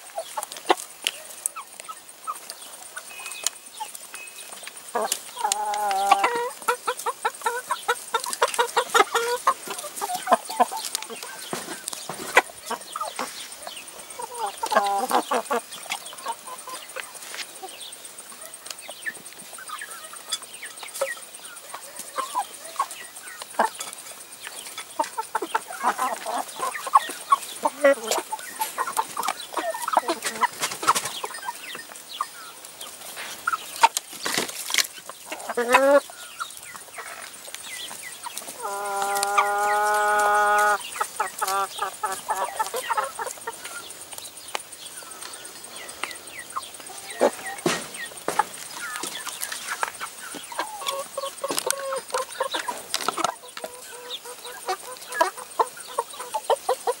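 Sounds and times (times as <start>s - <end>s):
chickens clucking: 0.0s - 57.0s
chicken long call: 5.0s - 6.9s, 14.2s - 15.6s, 38.5s - 43.8s.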